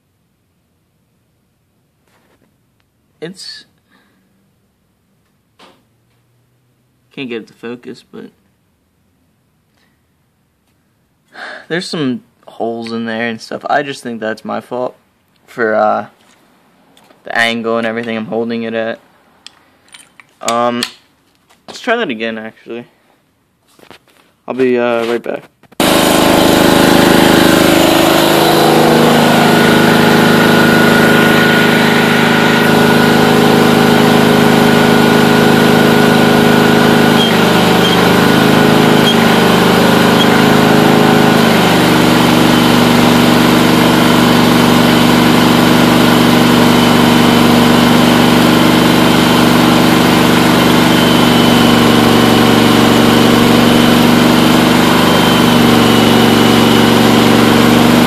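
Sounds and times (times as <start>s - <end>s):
garden tractor engine running: 25.8s - 58.0s.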